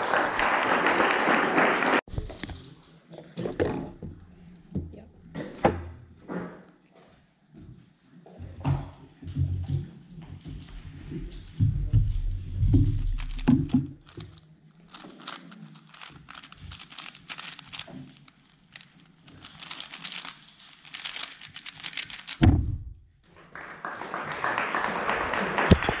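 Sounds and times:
plastic cube clicking: 0:12.9 - 0:22.4.

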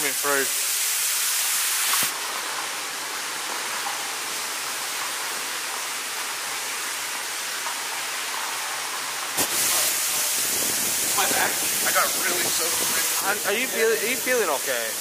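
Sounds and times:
water splashing onto floor: 0:00.0 - 0:15.0.

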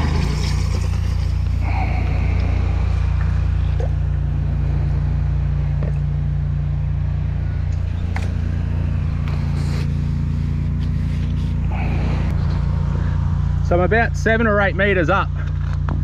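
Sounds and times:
drain jetter engine humming: 0:00.0 - 0:15.9.

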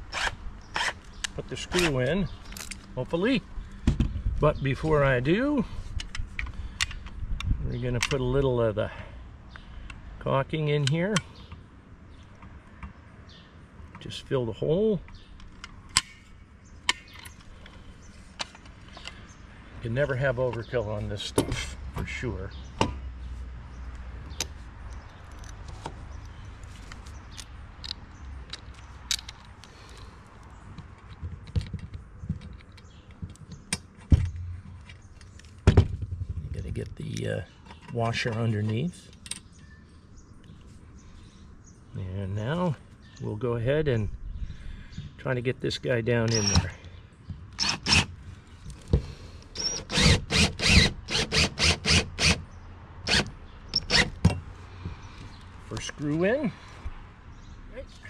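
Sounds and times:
cordless drill whirring: 0:49.6 - 0:52.4, 0:53.1 - 0:54.2.

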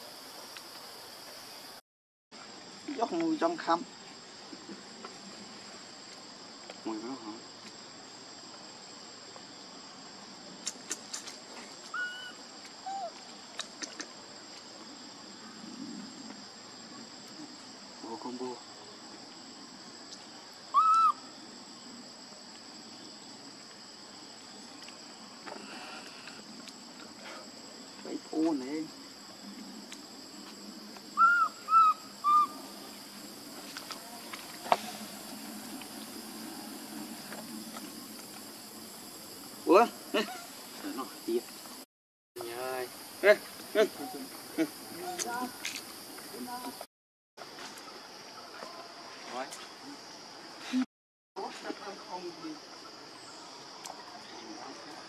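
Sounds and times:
forest insects droning: 0:00.0 - 0:01.8, 0:02.4 - 0:55.0
monkey coo calls: 0:11.9 - 0:13.2, 0:20.7 - 0:21.3, 0:31.2 - 0:32.8.

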